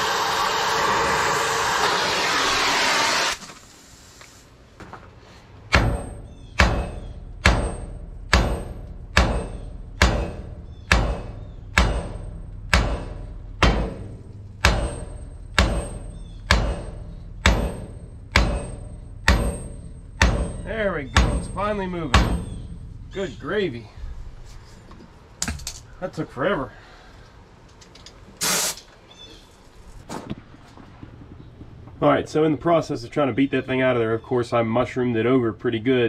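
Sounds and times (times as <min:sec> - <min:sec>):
cutting torch flame hissing: 0:00.0 - 0:04.5, 0:28.4 - 0:28.8
hammer striking steel bolt: 0:05.7 - 0:23.1.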